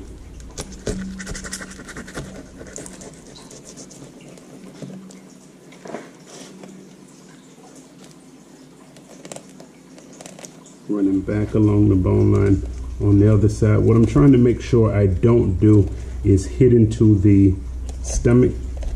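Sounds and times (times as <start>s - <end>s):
knife slicing fish skin: 0.6s - 3.8s.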